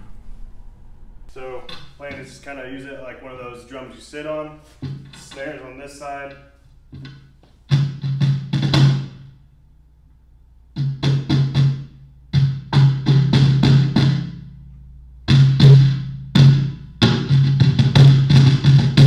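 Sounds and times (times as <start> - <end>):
hand-slapped cajon booming: 7.0 - 9.3, 10.8 - 14.4, 15.3 - 19.0.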